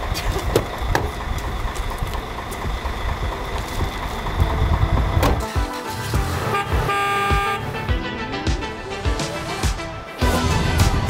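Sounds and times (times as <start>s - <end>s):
street traffic: 0.0s - 11.0s
music: 4.4s - 11.0s.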